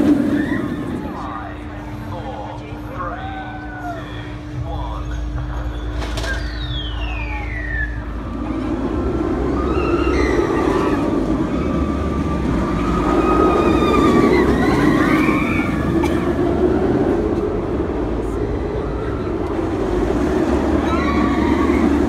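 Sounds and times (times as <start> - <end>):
riders screaming: 0.0 - 1.2, 9.4 - 16.5, 20.6 - 22.0
roller coaster wheels roaring on rails: 0.0 - 22.0
falling shriek: 9.4 - 12.0, 12.7 - 16.0.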